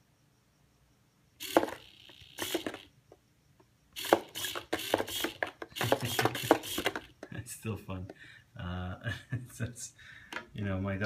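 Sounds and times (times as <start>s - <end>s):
rattling clicks of cardboard arms: 1.4s - 2.9s, 4.0s - 7.4s
servo motor buzzing: 1.4s - 2.9s, 4.0s - 7.1s.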